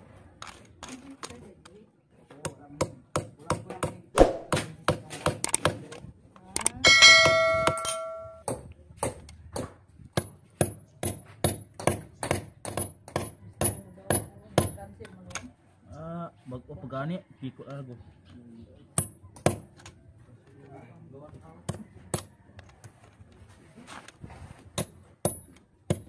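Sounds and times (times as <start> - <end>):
metallic ring: 6.8 - 8.4
hammer striking chisel on concrete: 6.8 - 14.8, 24.8 - 26.0.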